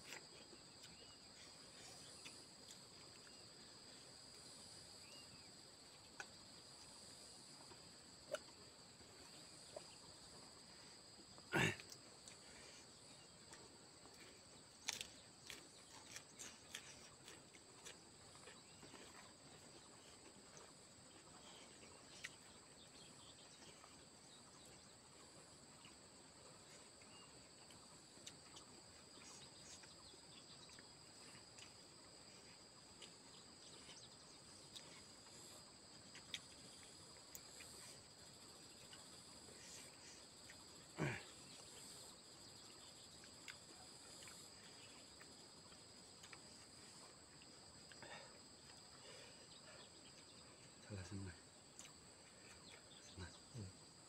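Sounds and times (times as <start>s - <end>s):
insect drone: 0.0s - 54.0s
person eating and chewing: 13.5s - 22.5s, 43.2s - 46.6s.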